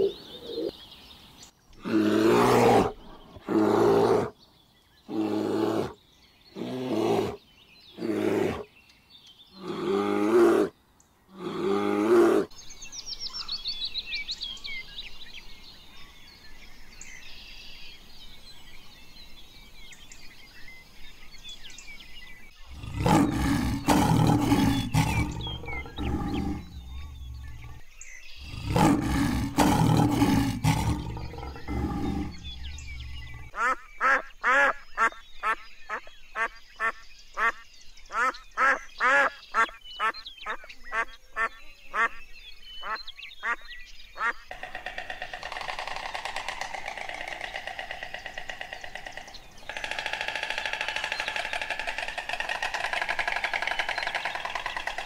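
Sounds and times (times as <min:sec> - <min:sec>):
bear roaring: 0:01.8 - 0:04.3, 0:08.0 - 0:08.7, 0:09.6 - 0:10.7, 0:11.4 - 0:12.5, 0:22.7 - 0:27.8, 0:28.4 - 0:33.5
high bird chirps: 0:22.6 - 0:55.0
loud rough sound: 0:22.7 - 0:27.8, 0:28.5 - 0:33.5.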